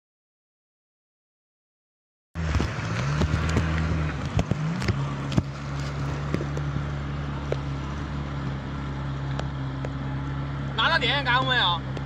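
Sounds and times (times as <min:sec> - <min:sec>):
outboard motor running: 0:02.4 - 0:12.0.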